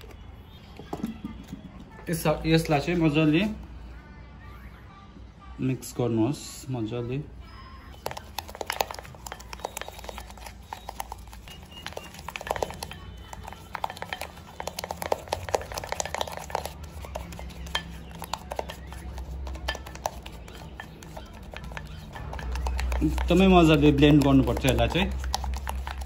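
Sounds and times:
brush scraping glass bowl: 8.0s - 26.0s.

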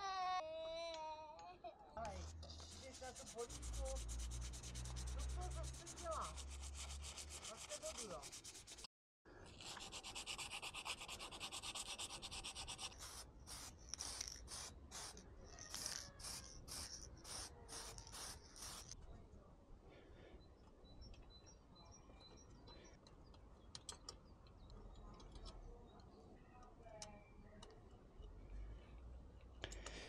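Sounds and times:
sandpaper rubbing: 2.0s - 8.9s, 9.6s - 19.0s.

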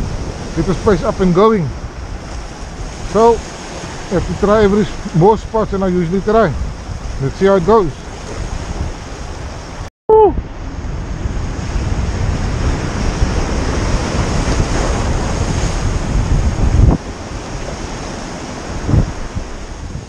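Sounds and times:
surf washing onto shore: 0.0s - 20.0s
wind buffeting microphone: 0.0s - 20.0s.

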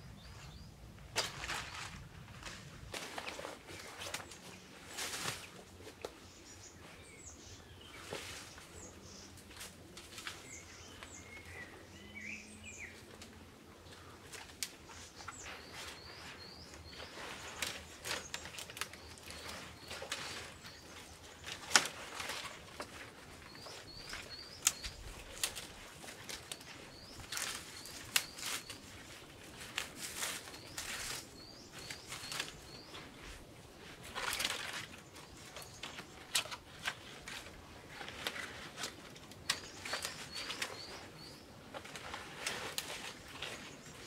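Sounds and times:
leafy branches rustling: 0.0s - 44.0s
twigs snapping: 17.5s - 20.7s, 21.4s - 23.0s, 23.6s - 28.8s, 34.1s - 40.9s.

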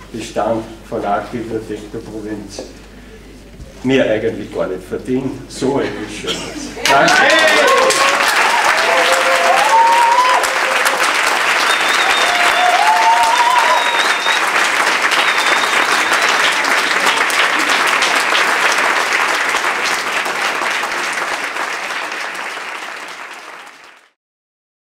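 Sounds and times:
crowd clapping: 6.8s - 24.2s.

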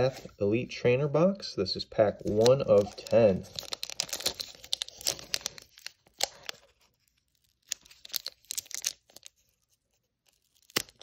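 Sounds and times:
foil wrapper tearing: 2.3s - 9.4s, 10.3s - 11.0s
sharp crack of wrapper: 2.3s - 9.4s, 10.3s - 11.0s.

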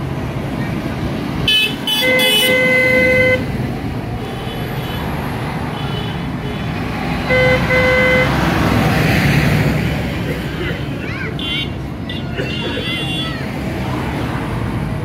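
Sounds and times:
tractor engines rumbling: 0.0s - 15.0s
tractor horn blasts: 1.5s - 3.5s, 7.3s - 8.4s.

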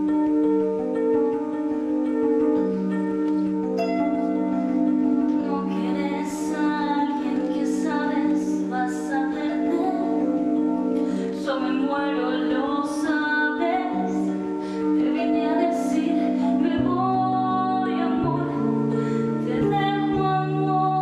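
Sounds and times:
accompaniment chords: 0.0s - 21.0s
woman singing: 5.3s - 10.5s, 11.1s - 21.0s.

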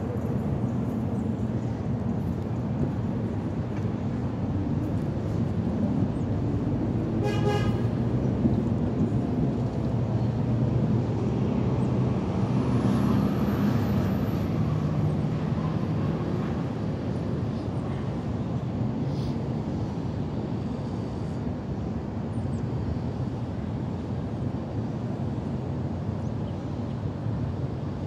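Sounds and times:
road traffic rumble: 0.0s - 28.0s
short horn toot: 7.2s - 7.8s.

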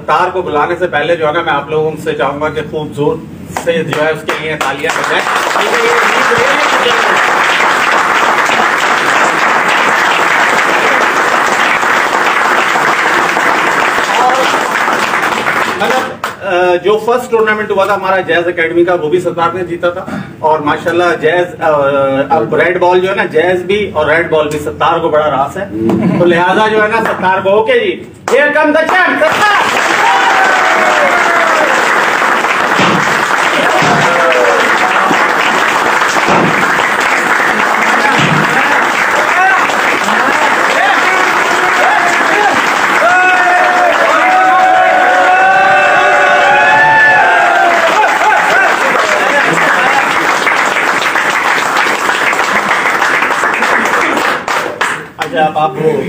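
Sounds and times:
crowd applause: 4.6s - 16.2s, 29.2s - 55.1s.

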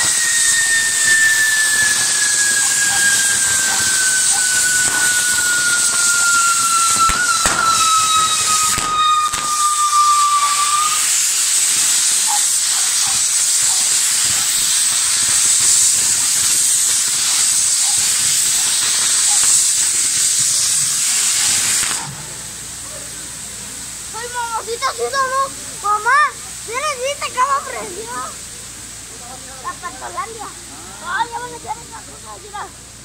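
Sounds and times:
firework pops: 0.0s - 22.6s
whistling firework: 0.0s - 32.6s
firework fountains hissing: 0.0s - 33.0s.

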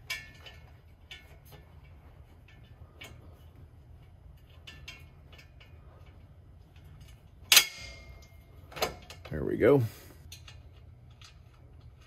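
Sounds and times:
low steady hum: 0.0s - 12.0s
sharp metal clank: 7.5s - 8.4s.

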